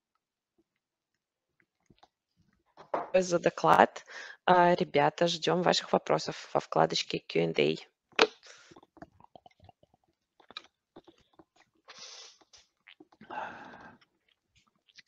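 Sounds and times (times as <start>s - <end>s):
drinking and swallowing: 1.6s - 2.2s, 8.2s - 15.0s
short breaths: 4.0s - 4.4s, 11.9s - 12.5s, 13.2s - 14.0s
mouth clicks: 8.2s - 15.0s.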